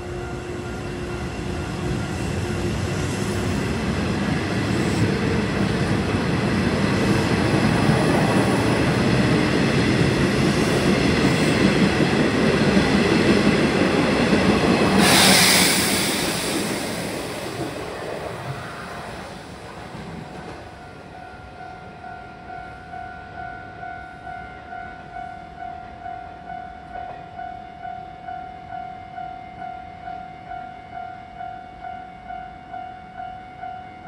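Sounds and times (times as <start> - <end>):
train wheels rumbling on rails: 0.0 - 21.6
faint train whine: 0.0 - 34.0
loud hiss: 14.9 - 17.8.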